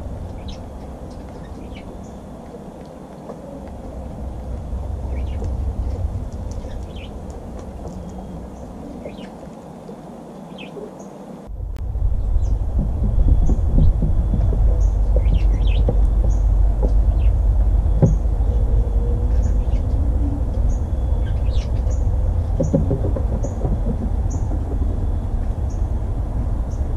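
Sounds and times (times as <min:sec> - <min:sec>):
steady low rumble: 0:00.0 - 0:10.6, 0:11.2 - 0:26.9
birds chirping: 0:00.0 - 0:26.9.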